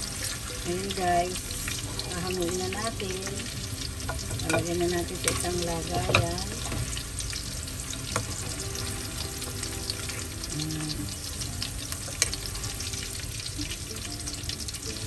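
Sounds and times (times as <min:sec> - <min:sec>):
food sizzling in hot oil: 0:00.0 - 0:15.0
spoon stirring in a wok: 0:04.0 - 0:07.0.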